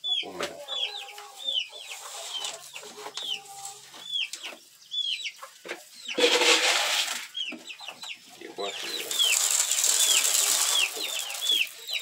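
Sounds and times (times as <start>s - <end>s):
chickens clucking and peeping: 0.0s - 12.0s
loud rustling: 9.0s - 12.0s.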